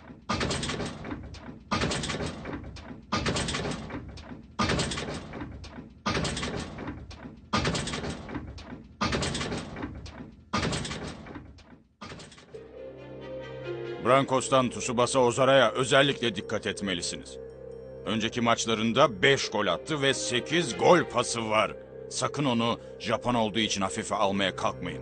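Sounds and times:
cartoon heavy footstep thuds: 0.0 - 12.5.

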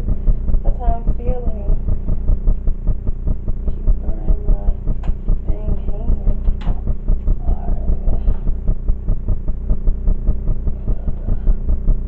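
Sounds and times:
bass-heavy music with fast beat: 0.0 - 12.0
person singing or humming: 10.7 - 11.7.

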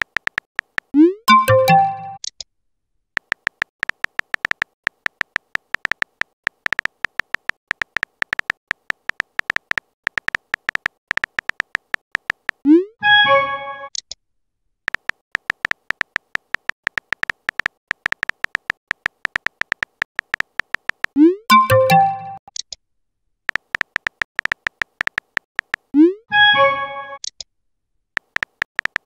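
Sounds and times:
phone keyboard typing clicks: 0.0 - 2.4, 3.2 - 12.6, 14.9 - 22.7, 23.5 - 25.9, 28.2 - 29.0.

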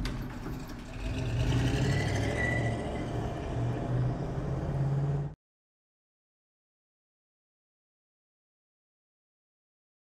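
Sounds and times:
pickup truck engine driving away: 0.0 - 5.4.

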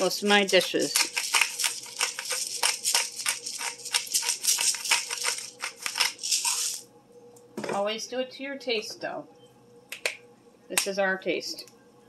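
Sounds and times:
pepper shaker rattling: 0.0 - 6.9.

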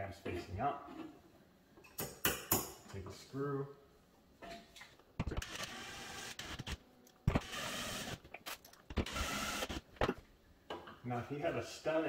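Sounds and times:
cordless drill whirring: 5.4 - 8.2, 8.9 - 9.8.

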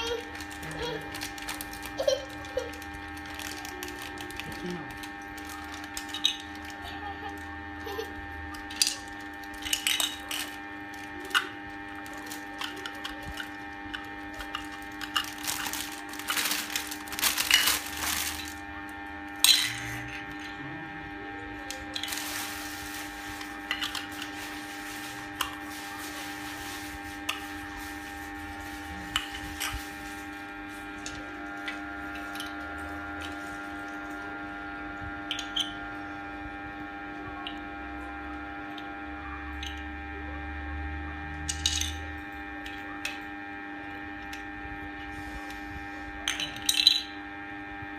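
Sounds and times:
plastic packaging crinkling: 0.0 - 18.7, 21.6 - 34.2
steady tonal hum: 0.0 - 47.9.

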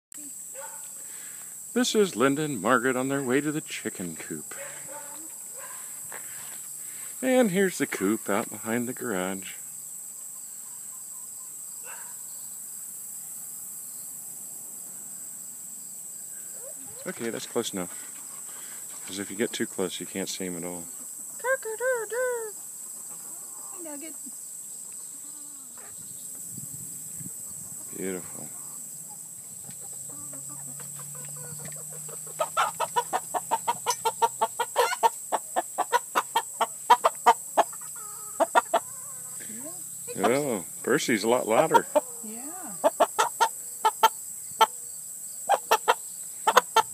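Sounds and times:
brief insect call: 0.2 - 46.9
insects chorus in grass: 0.2 - 46.9
chickens clucking: 1.8 - 6.3, 16.4 - 44.8, 45.4 - 46.9.

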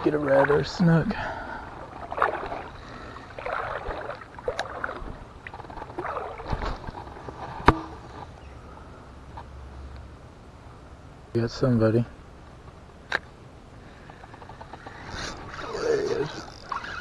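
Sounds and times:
fishing rod and reel handled: 14.0 - 17.0
reel clicks: 14.0 - 17.0.

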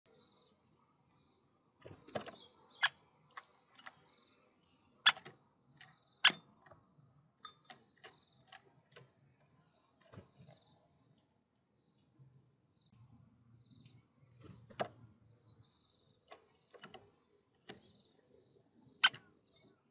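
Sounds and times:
small birds chirping: 0.0 - 19.9
woodpecker knocking on wood: 5.0 - 6.8.

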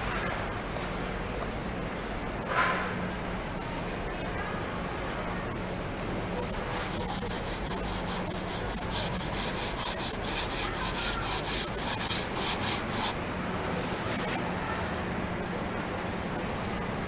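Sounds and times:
low factory hum: 0.0 - 17.0
sanding block on plywood: 6.5 - 13.2.

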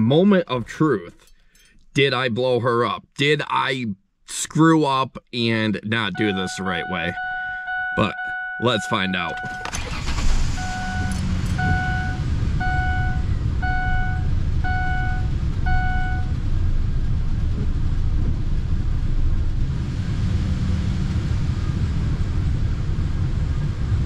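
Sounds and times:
warning chime beeping: 6.0 - 16.3
truck engine idling: 6.1 - 16.4.

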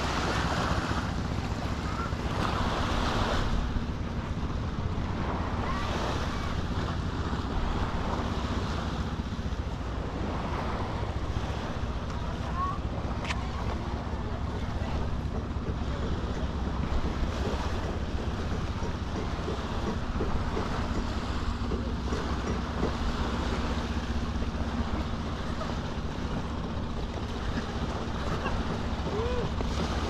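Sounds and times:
small waves washing onto sand: 0.0 - 30.0.

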